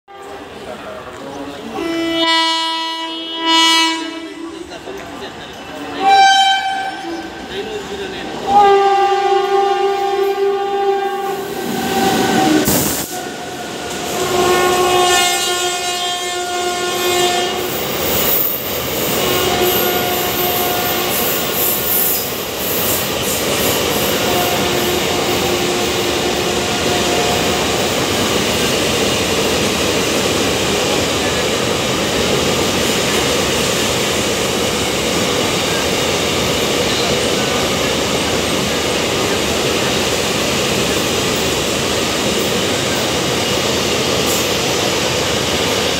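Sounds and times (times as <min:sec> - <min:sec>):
train horn blasts: 0:00.1 - 0:00.6, 0:01.7 - 0:04.6, 0:05.9 - 0:07.4, 0:08.4 - 0:17.8, 0:19.1 - 0:21.8, 0:24.0 - 0:27.9.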